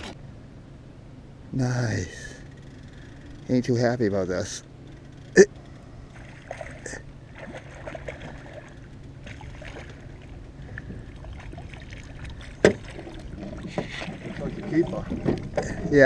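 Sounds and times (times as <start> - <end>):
steady low rumble: 0.0 - 16.0
fish thrashing and splashing: 6.1 - 15.8.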